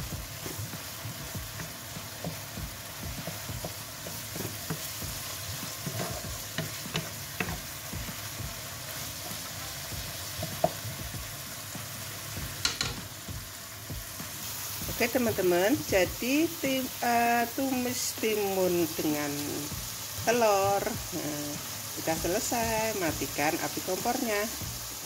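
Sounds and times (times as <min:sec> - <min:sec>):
spatula scraping a wok: 0:00.0 - 0:10.8
food sizzling in a wok: 0:00.0 - 0:25.0
spatula knocking on pan: 0:00.1 - 0:08.6, 0:12.4 - 0:13.4.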